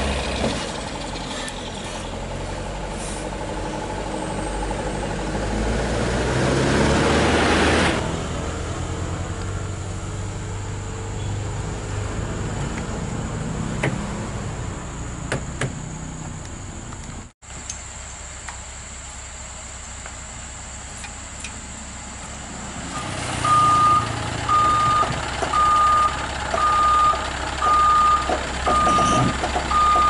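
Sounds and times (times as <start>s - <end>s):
diesel truck engine hauling uphill: 0.0s - 30.0s.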